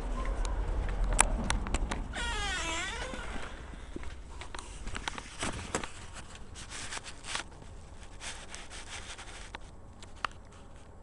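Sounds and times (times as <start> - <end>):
handling noise rubbing: 3.0 - 10.9.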